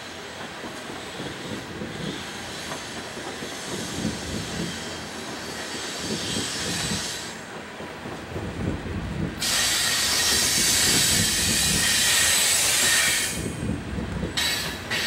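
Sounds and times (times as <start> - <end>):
steel wheels rumbling on rail: 0.0 - 15.0
high wheel squeal: 9.4 - 13.5.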